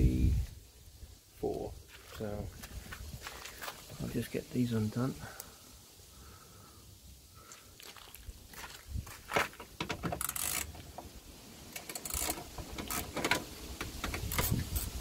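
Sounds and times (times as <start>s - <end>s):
socket ratchet clicking: 10.1s - 10.7s, 11.8s - 14.9s.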